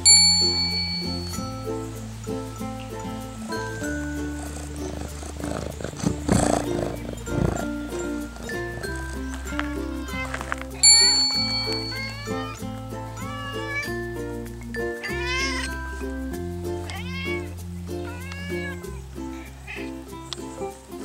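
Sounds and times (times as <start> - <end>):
light background music: 0.0 - 21.0
cat meowing: 4.8 - 12.6, 13.2 - 14.0, 15.0 - 15.8, 16.9 - 20.1.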